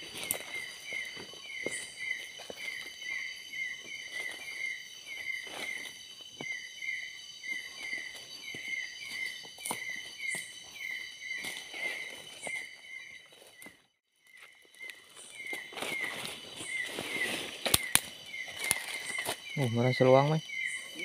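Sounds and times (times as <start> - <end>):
insect chirping: 0.0 - 21.0
insects trilling: 0.0 - 21.0
footsteps crunching leaf litter: 3.9 - 6.0, 11.3 - 12.7, 14.4 - 19.5.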